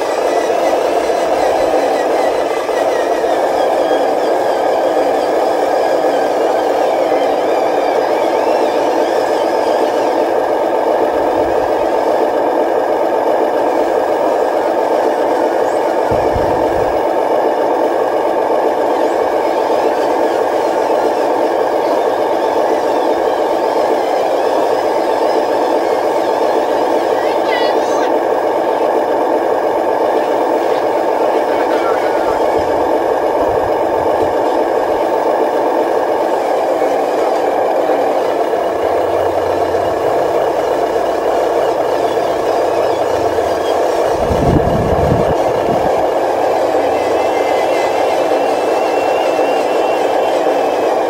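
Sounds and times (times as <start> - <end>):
toy truck motor drone with rattle: 0.0 - 12.3.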